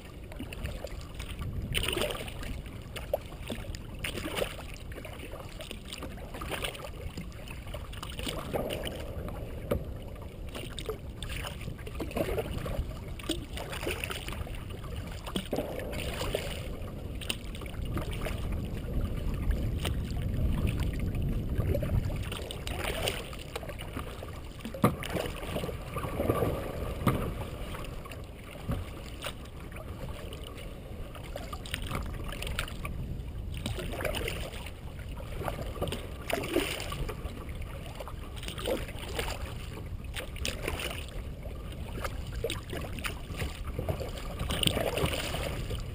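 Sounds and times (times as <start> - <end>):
paddle strokes splashing: 0.0 - 45.9
steady low rumble: 4.8 - 36.3.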